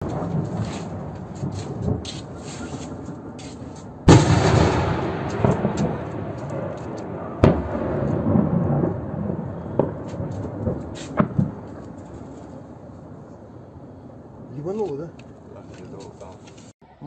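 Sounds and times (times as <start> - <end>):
sharp bangs: 0.0 - 12.7
loud explosion rumbling: 4.0 - 13.3.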